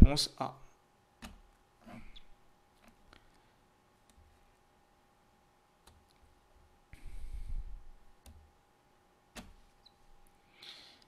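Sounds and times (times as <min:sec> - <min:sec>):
computer mouse clicking: 0:05.8 - 0:06.3, 0:09.3 - 0:09.6.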